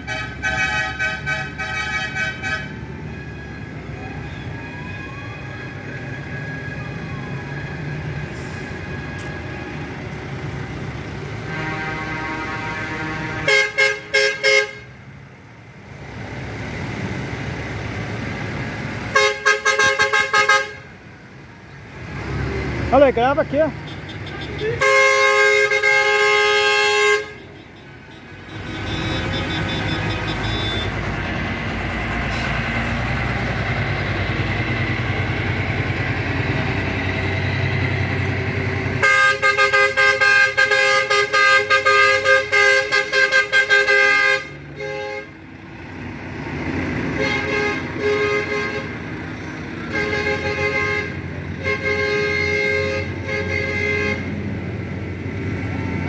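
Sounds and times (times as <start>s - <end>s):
multi-tone horn blasts: 0.0s - 2.8s, 11.4s - 15.0s, 19.1s - 20.9s, 23.8s - 31.0s, 39.0s - 45.4s, 47.1s - 49.0s, 49.8s - 54.4s
horns honking: 0.0s - 3.1s, 11.2s - 15.0s, 19.1s - 21.0s, 22.9s - 31.3s, 38.8s - 45.5s, 47.1s - 54.5s
truck engine rumbling: 0.0s - 56.0s
vehicles driving past: 0.0s - 56.0s.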